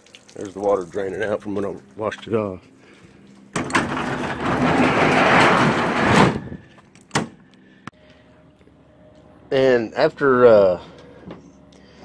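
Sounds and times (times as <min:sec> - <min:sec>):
truck bed cover sliding: 0:03.6 - 0:06.7.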